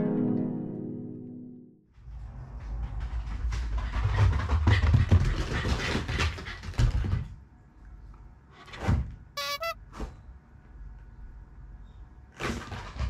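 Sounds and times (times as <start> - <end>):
dog paws scrabbling on mats: 2.0 - 7.4.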